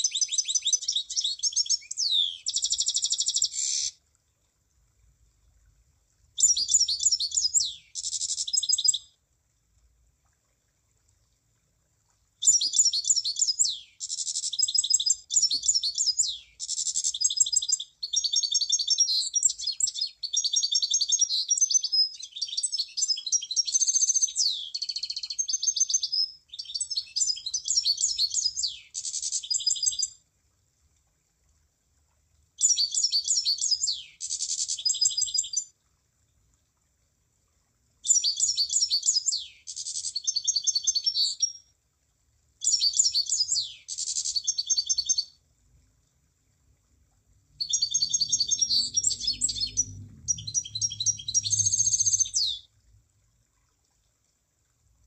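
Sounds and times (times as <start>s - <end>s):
bird song chattering and whistles: 0.0s - 3.9s, 6.4s - 9.0s, 12.4s - 30.1s, 32.6s - 35.6s, 38.1s - 41.6s, 42.6s - 45.3s, 47.6s - 52.7s.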